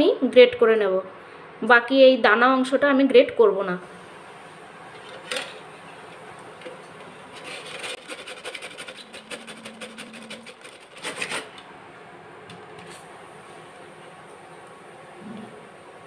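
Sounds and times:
grater rasping: 7.3s - 11.6s.

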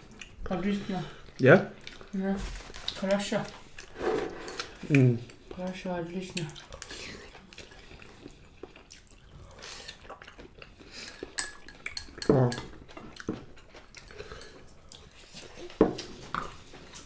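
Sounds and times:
chopsticks clicking on ceramic bowls: 11.1s - 12.8s.

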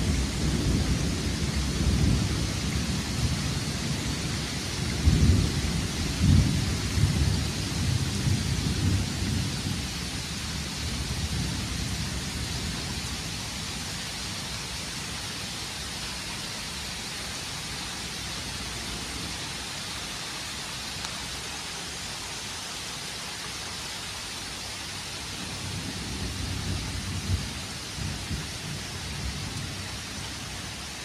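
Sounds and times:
low thunder rumble: 0.0s - 10.2s
rain falling on trees: 0.0s - 31.0s.

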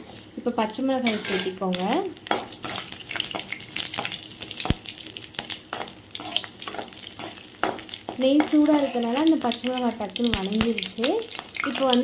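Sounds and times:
chillies sizzling in hot oil: 0.0s - 12.0s
steel spoon scraping a pan: 1.0s - 1.6s, 5.7s - 9.2s.

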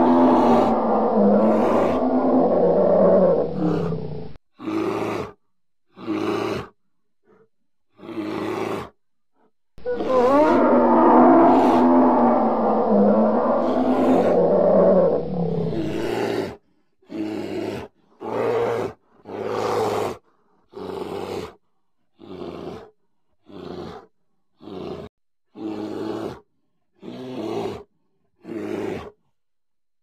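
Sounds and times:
large animal roaring: 0.0s - 5.4s, 9.8s - 16.6s
short animal growls: 0.0s - 5.4s, 9.8s - 16.6s.

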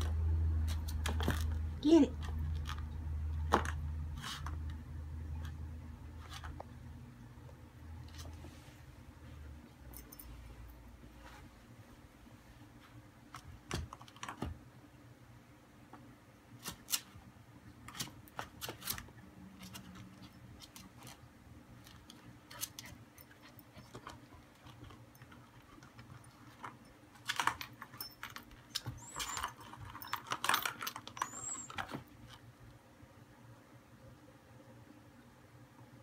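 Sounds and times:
plastic toy clicking and rattling: 28.6s - 31.8s.

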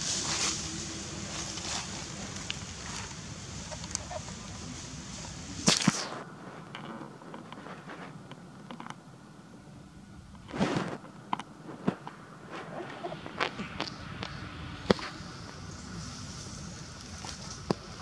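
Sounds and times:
dry leaves rustling: 0.0s - 6.2s, 12.5s - 18.0s.

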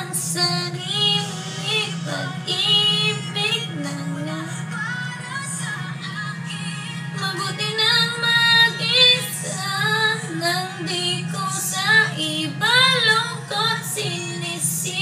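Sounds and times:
steady low hum: 0.0s - 15.0s
woman singing a slow love song: 0.0s - 15.0s.

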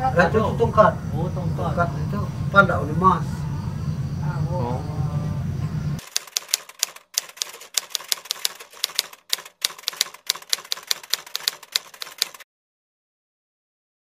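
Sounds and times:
typewriter key clacks: 6.0s - 12.4s.

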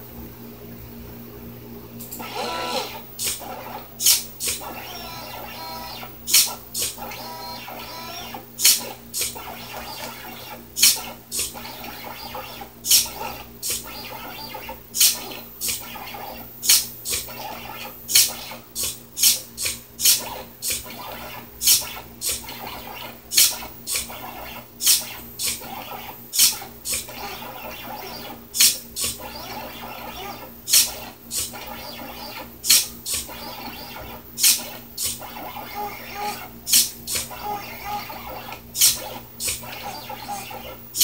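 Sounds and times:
servo short sharp buzzes: 2.0s - 41.0s
stepper motor hum: 2.0s - 41.0s.

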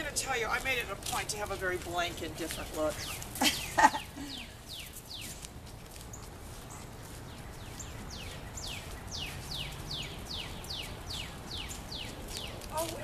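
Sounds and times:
outdoor background hiss: 0.0s - 13.0s
bird chirping: 2.5s - 13.0s.

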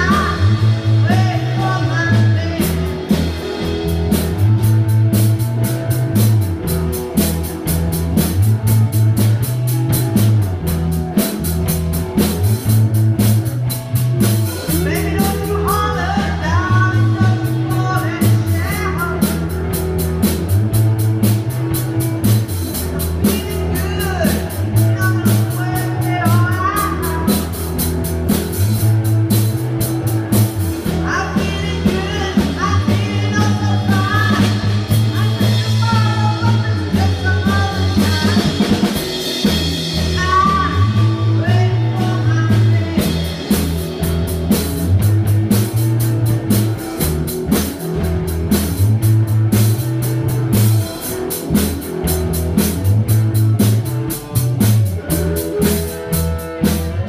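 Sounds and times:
woman singing: 0.0s - 3.3s, 14.7s - 19.5s, 23.2s - 27.5s, 30.8s - 39.0s, 39.8s - 43.6s
rock band playing: 0.0s - 57.0s.

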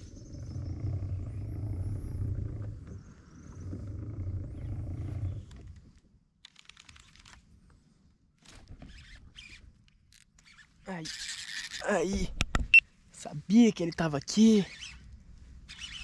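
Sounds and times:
fishing reel whirring: 10.4s - 11.9s, 15.7s - 16.0s.

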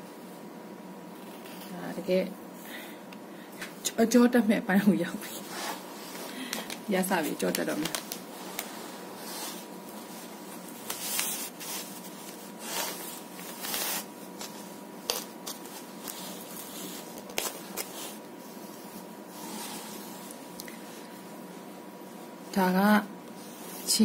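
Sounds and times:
hands rubbing paper: 5.3s - 20.4s.

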